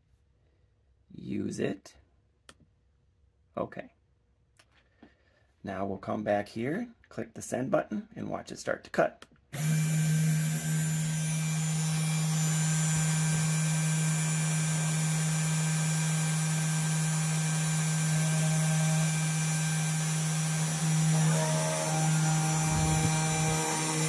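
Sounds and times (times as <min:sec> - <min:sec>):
spindle motor humming: 0:09.6 - 0:24.0
high whine: 0:12.7 - 0:24.0.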